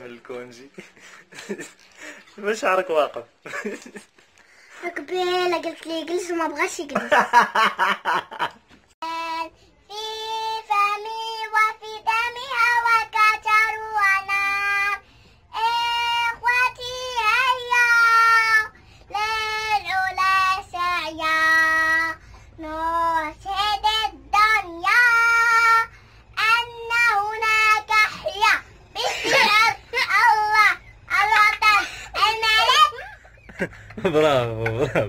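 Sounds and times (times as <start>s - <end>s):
girl singing unaccompanied: 4.8s - 7.0s, 9.0s - 33.4s.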